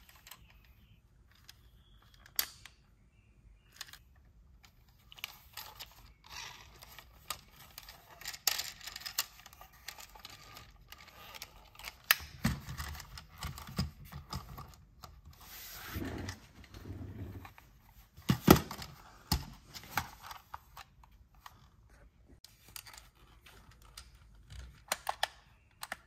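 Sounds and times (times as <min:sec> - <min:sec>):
toy wheels rolling: 0:04.9 - 0:14.8.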